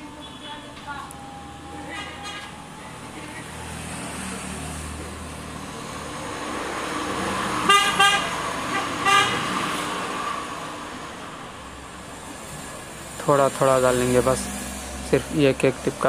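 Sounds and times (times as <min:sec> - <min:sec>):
passing vehicle noise: 0:00.0 - 0:16.0
vehicle horn toots: 0:01.8 - 0:02.6, 0:07.7 - 0:09.5.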